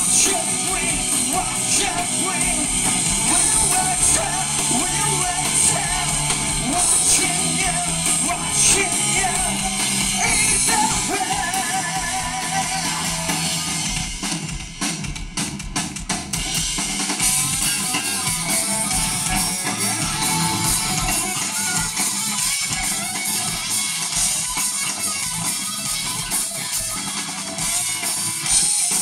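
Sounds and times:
person singing: 0.0 - 13.8
live rock band playing: 0.0 - 29.0.

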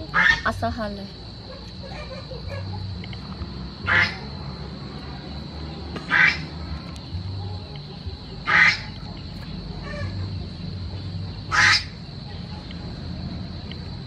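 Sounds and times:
duck quacking: 0.1 - 0.5, 3.8 - 4.2, 6.0 - 6.6, 8.5 - 9.0, 11.5 - 12.0.

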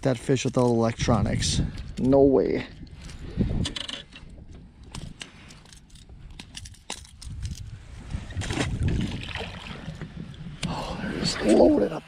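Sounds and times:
water sloshing against boat hull: 8.2 - 10.4.

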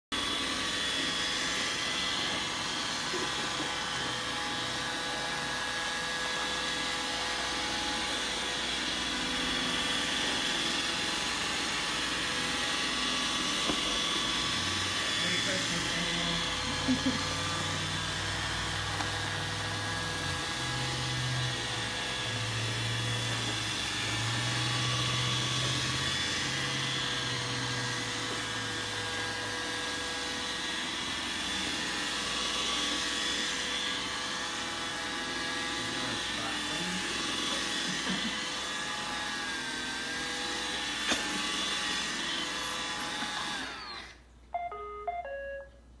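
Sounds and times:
robot vacuum whirring: 0.2 - 44.3
short electronic tones: 44.6 - 46.0.

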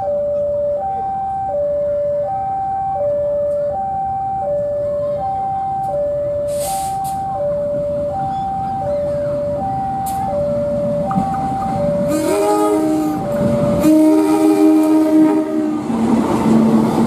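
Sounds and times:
level crossing alarm: 0.0 - 15.9
diesel locomotive running: 0.0 - 17.0
brief hiss: 6.5 - 7.2.

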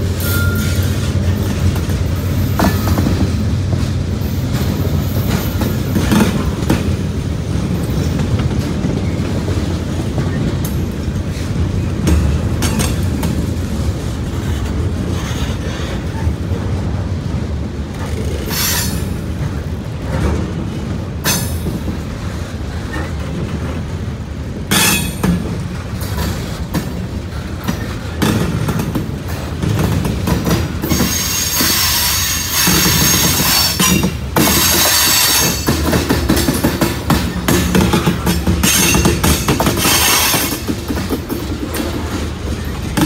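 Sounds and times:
freight train wheels rumbling: 0.0 - 43.0
train cars clanking: 0.0 - 43.0
wheel squeal: 30.8 - 34.0.

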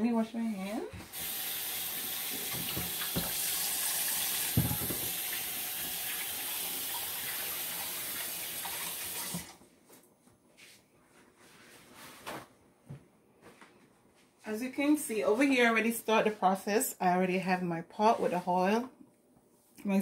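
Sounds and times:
faucet running: 1.1 - 9.6.

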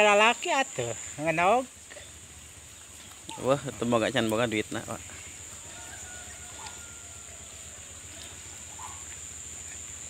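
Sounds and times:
fowl calls: 5.0 - 10.0.

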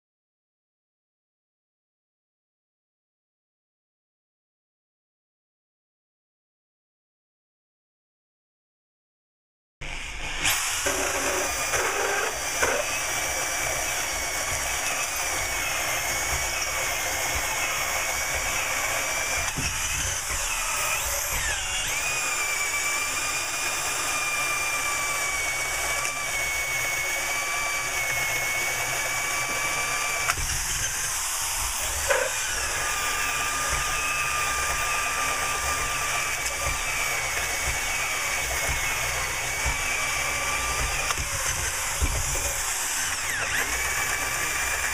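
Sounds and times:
electric drills whining: 9.8 - 44.9.

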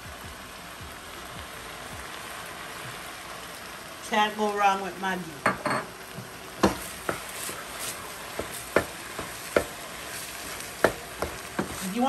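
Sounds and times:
food sizzling in a frying pan: 0.0 - 12.0
wooden spatula stirring food: 6.0 - 12.0
spatula knocking against pan: 6.6 - 7.3, 8.3 - 9.8, 10.8 - 11.8.

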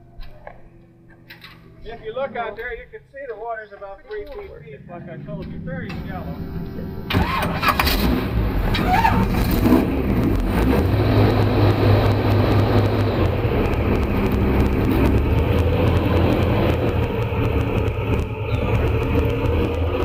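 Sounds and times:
airboat engine and propeller drone: 4.3 - 8.6, 9.5 - 20.0.

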